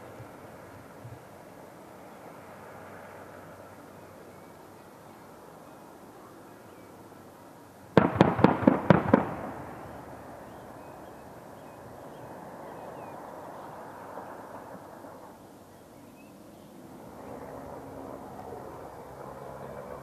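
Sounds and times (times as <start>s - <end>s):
distant helicopter noise: 0.0s - 20.0s
cannon fire bursts: 8.0s - 10.3s
rumbling echo: 8.0s - 10.8s.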